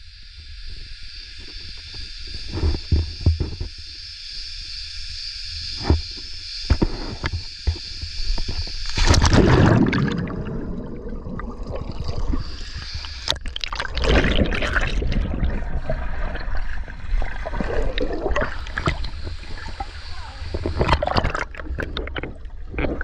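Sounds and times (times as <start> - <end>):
muffled underwater bubbling: 9.0 - 23.0
pool water splashing: 9.0 - 23.0.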